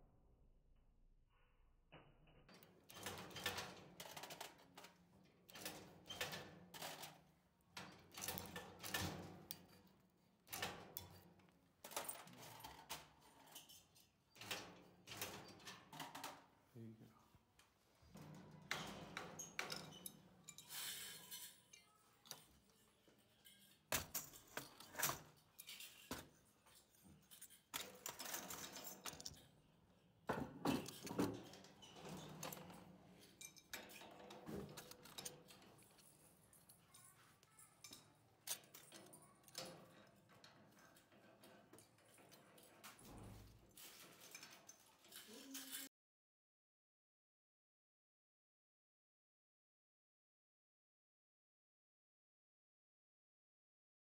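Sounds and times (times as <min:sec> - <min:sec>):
metal parts clinking: 0:19.4 - 0:29.5, 0:30.8 - 0:45.9.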